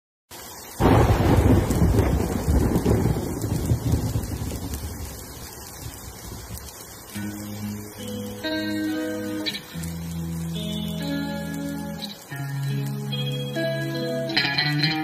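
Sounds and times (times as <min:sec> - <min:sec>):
rain: 0:00.3 - 0:15.0
thunder rumbling: 0:00.8 - 0:09.2.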